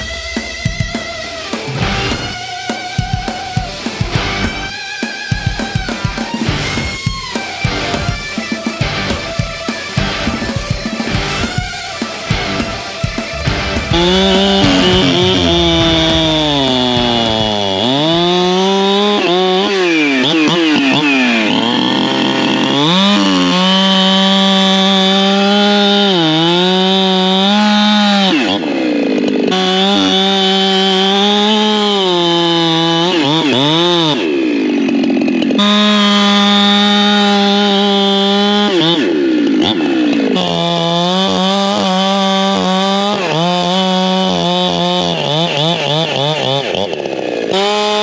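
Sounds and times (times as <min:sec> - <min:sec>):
chainsaw cutting log: 0:00.0 - 0:48.0.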